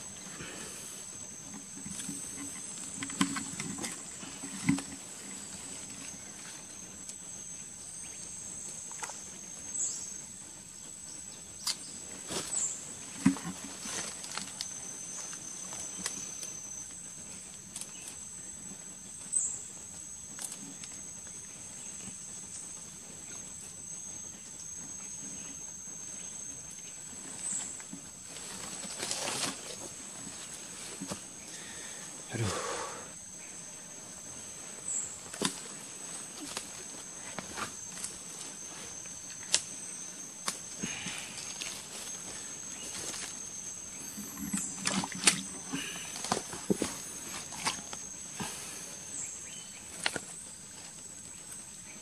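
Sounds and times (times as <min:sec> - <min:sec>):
insects droning: 0:00.0 - 0:52.0
footsteps through undergrowth: 0:34.4 - 0:48.2.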